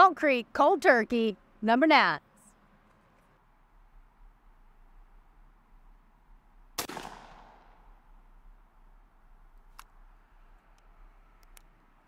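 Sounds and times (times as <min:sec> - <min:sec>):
shotgun shot echoing: 0:06.8 - 0:08.0.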